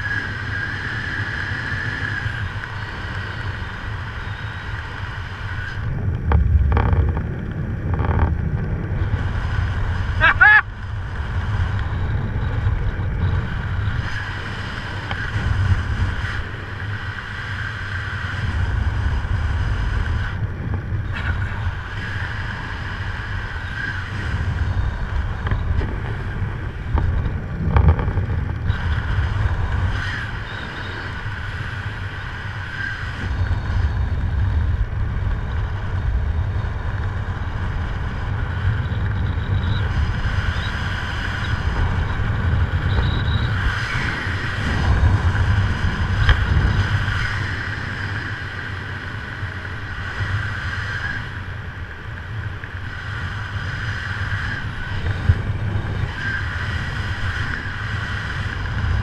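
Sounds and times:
wind buffeting microphone: 0.0s - 59.0s
faint whistle: 42.8s - 43.6s.

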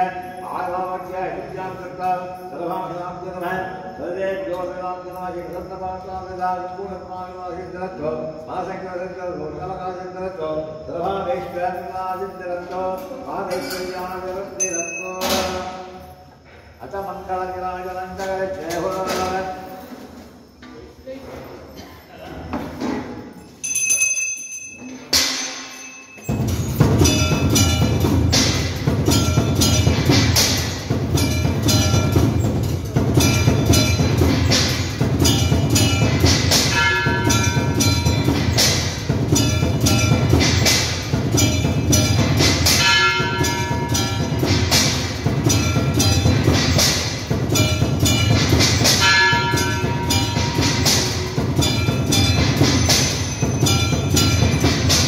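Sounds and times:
temple bells ringing: 10.8s - 16.4s, 23.3s - 55.0s
drums in fast rhythm: 26.2s - 55.0s.

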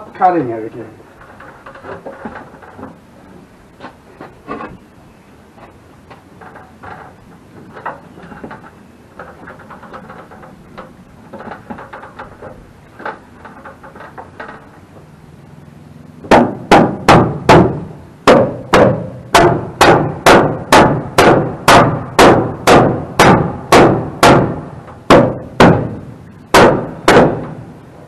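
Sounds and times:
hammer striking wooden board: 16.3s - 27.6s.

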